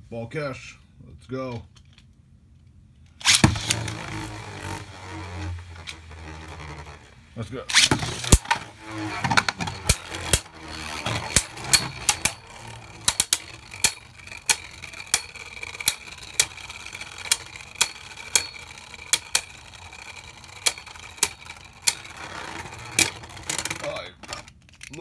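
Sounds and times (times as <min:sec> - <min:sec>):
spinning tops whining: 0:03.2 - 0:24.5
spinning tops clicking together: 0:07.7 - 0:23.9.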